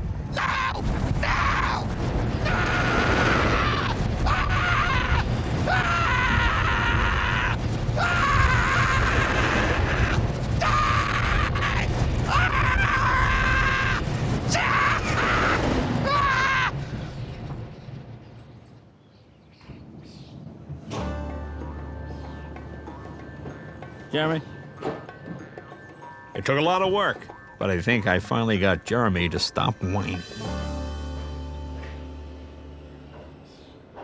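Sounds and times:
rushing wind roar: 0:00.0 - 0:19.0
roller coaster rumble: 0:00.0 - 0:34.0
man screaming: 0:00.3 - 0:16.8.

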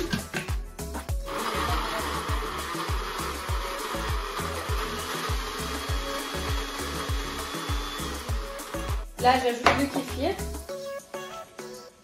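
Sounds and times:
blender chopping beetroot: 0:01.2 - 0:09.8.

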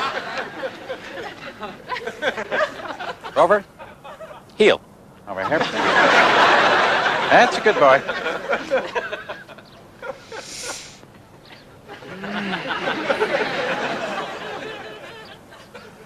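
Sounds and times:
brief hiss: 0:10.2 - 0:11.0
person snickering and chuckling: 0:12.0 - 0:13.4.

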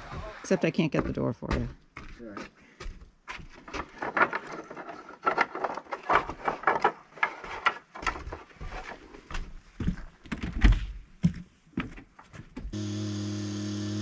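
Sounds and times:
wooden boards clacking together: 0:01.5 - 0:09.0.

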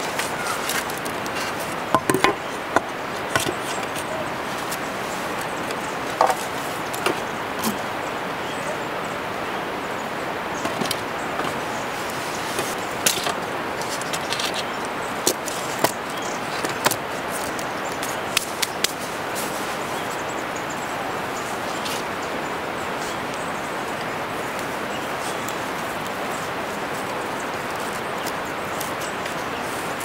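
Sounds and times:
wooden branches knocking: 0:00.0 - 0:04.8, 0:05.6 - 0:07.8
steady hiss: 0:00.0 - 0:30.0.

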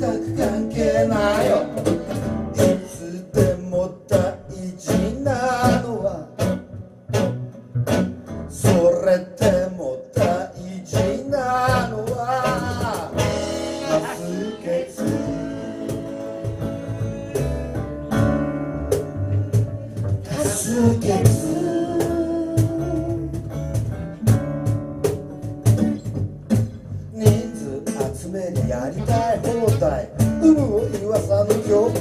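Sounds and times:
drums: 0:00.0 - 0:32.0
strummed acoustic guitars: 0:00.0 - 0:32.0
upright bass: 0:00.0 - 0:32.0
saxophone: 0:12.4 - 0:18.5.

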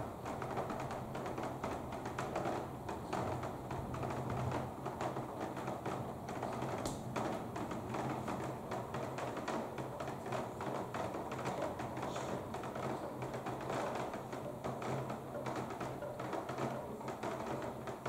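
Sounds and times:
raindrops tapping on hard surface: 0:00.0 - 0:18.0.

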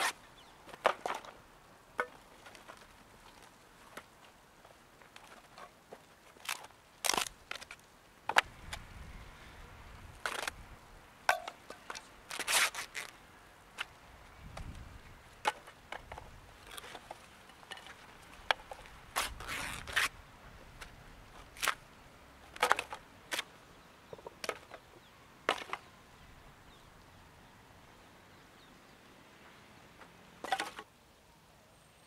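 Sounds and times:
paper tearing: 0:12.3 - 0:13.1, 0:19.2 - 0:20.1.

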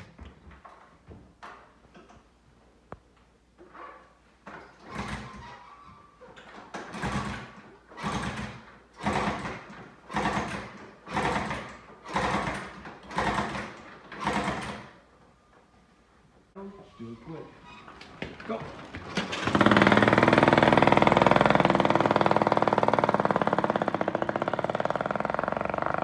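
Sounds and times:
motorcycle engine being kick-started: 0:04.7 - 0:05.6, 0:06.4 - 0:15.0, 0:18.8 - 0:25.4.

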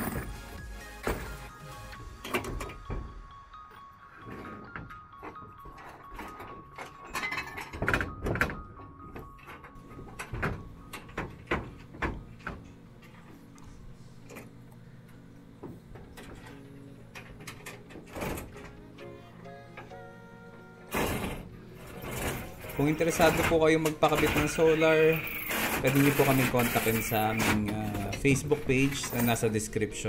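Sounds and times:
metal rails clanking and scraping: 0:04.2 - 0:12.0, 0:21.0 - 0:29.5.

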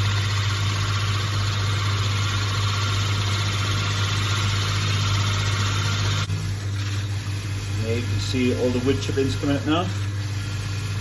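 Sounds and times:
drill bit cutting acrylic: 0:00.0 - 0:07.0
pillar drill motor hum: 0:00.0 - 0:11.0.

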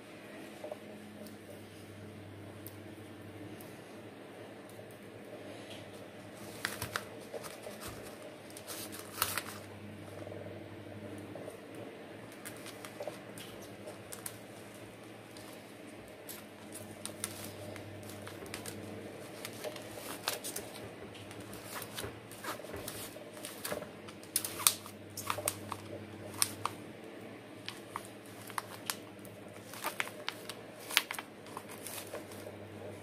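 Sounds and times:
steady low hum: 0:00.0 - 0:33.0
plastic pot crinkling: 0:06.3 - 0:09.7, 0:12.3 - 0:26.8, 0:27.6 - 0:33.0.

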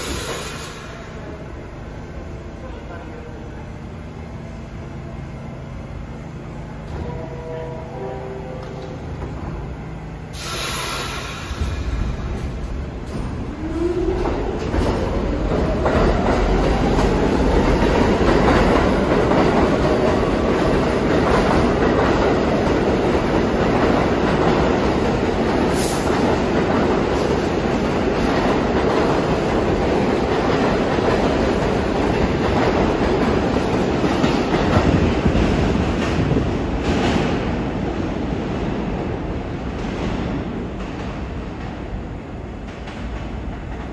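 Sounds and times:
subway train motor whine: 0:00.0 - 0:36.8
train rumble and wheels clacking: 0:00.0 - 0:43.9.

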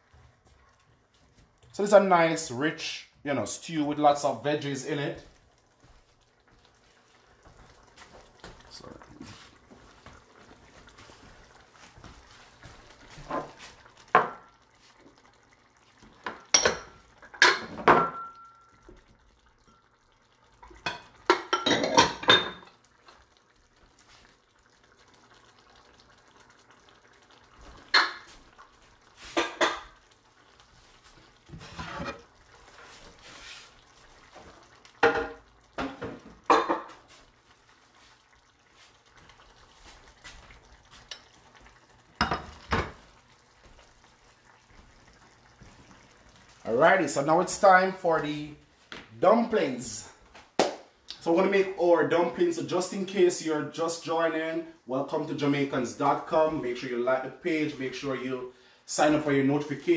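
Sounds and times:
kitchen dishes clattering: 0:20.8 - 0:22.7, 0:35.0 - 0:37.0.

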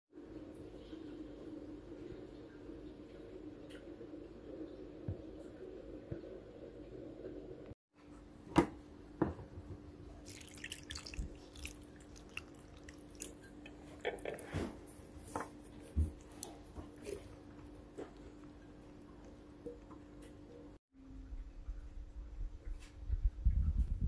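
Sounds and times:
faint steady hum: 0:00.2 - 0:24.0
juice dripping through strainer: 0:10.1 - 0:14.4.

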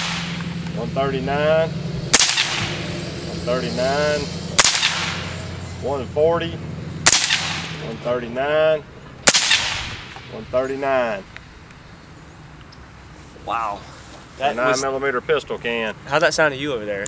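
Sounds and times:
suppressed rifle shots: 0:00.0 - 0:00.7, 0:02.1 - 0:02.8, 0:04.6 - 0:05.3, 0:07.0 - 0:07.8, 0:09.2 - 0:10.2.

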